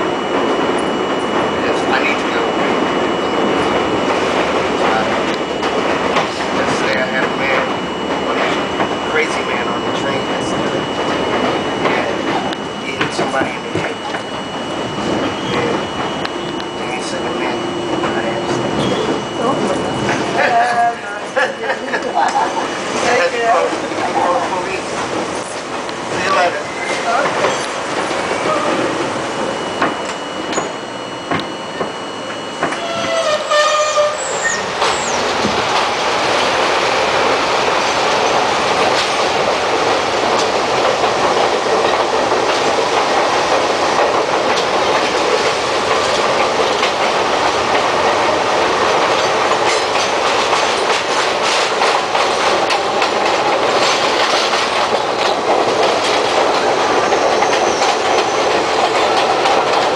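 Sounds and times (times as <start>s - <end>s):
subway train rumbling: 0.0s - 59.9s
wheels clacking over rail joints: 32.6s - 59.9s.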